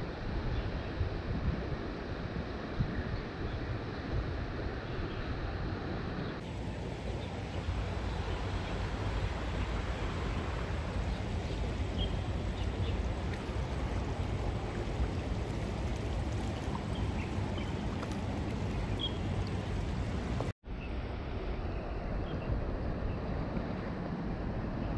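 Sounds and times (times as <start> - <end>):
fast-running creek rushing: 6.4 - 20.6.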